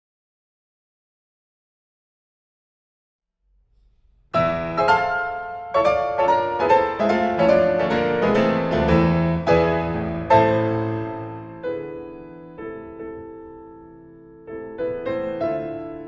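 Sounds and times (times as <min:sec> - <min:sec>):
classical piano piece: 0:04.3 - 0:16.0.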